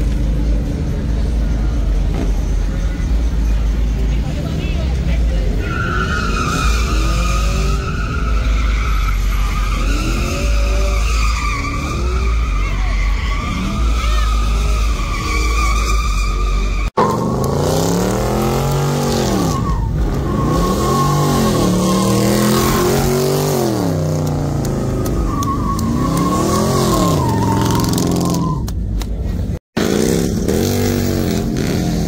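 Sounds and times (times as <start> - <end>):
tires squealing: 0.0 - 32.0
car engine revving: 6.0 - 28.4.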